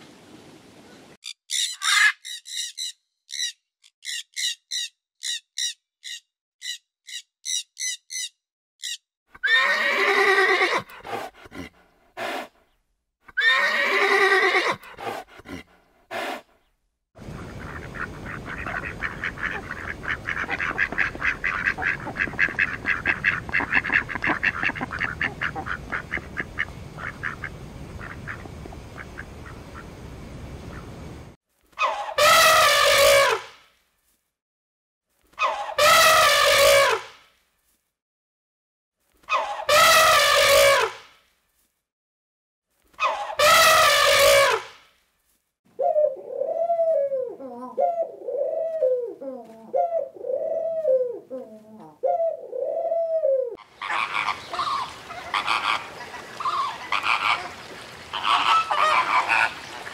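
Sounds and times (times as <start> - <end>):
horse whinnies: 9.4 - 10.9, 13.4 - 14.9
ducks quacking: 17.2 - 29.9, 53.6 - 59.9
steady background hiss: 25.2 - 31.4.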